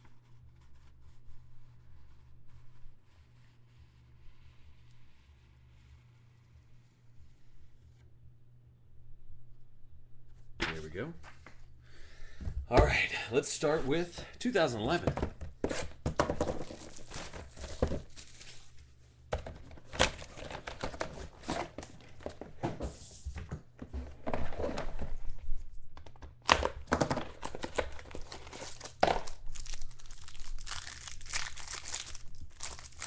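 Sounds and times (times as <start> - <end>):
wrapper crinkling and tearing: 16.6 - 18.7, 27.3 - 33.0.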